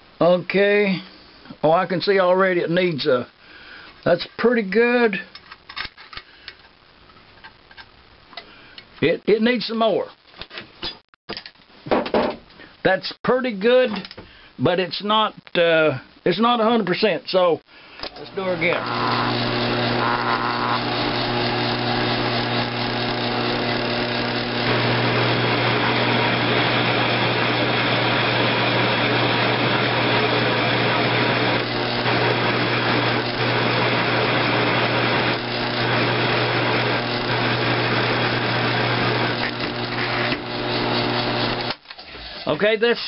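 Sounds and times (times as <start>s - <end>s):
mill-drill motor humming: 18.2s - 41.8s.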